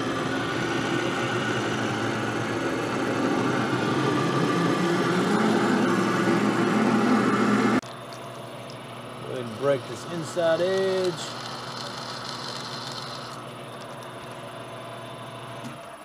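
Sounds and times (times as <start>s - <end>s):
lathe drilling metal: 0.0s - 7.8s, 9.2s - 13.4s.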